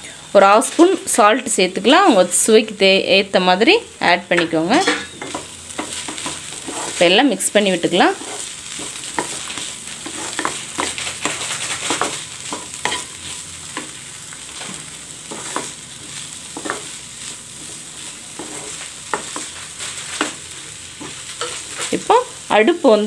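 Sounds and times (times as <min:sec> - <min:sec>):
vegetables sizzling in oil: 0:00.0 - 0:23.0
spatula scraping a pan: 0:04.8 - 0:07.2, 0:08.0 - 0:22.0.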